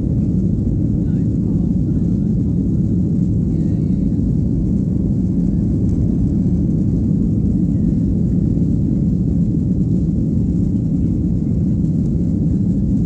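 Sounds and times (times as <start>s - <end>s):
jet engine cabin rumble: 0.0s - 13.0s.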